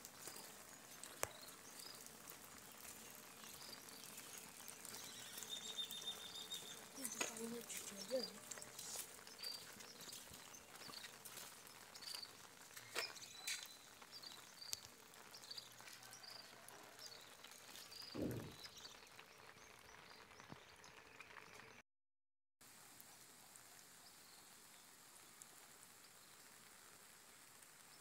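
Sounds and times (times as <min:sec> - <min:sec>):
brief low sound: 0:18.2 - 0:18.6.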